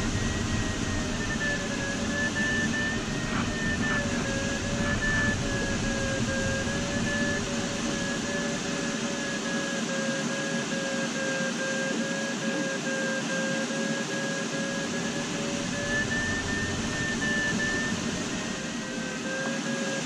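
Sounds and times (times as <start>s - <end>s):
variometer beeping: 0.0s - 9.4s, 14.6s - 20.0s
airflow rush in cockpit: 0.0s - 20.0s.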